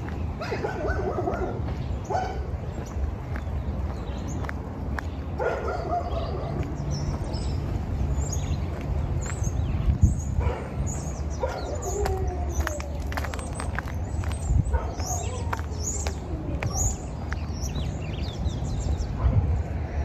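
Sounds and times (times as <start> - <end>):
birds chirping: 0.0 - 20.0
dog barking and whining: 11.4 - 12.8.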